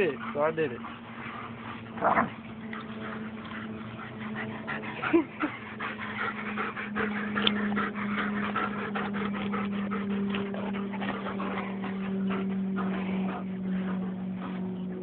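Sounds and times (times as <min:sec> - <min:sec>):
steady low hum: 0:00.0 - 0:15.0
dog whimpering: 0:04.2 - 0:14.1.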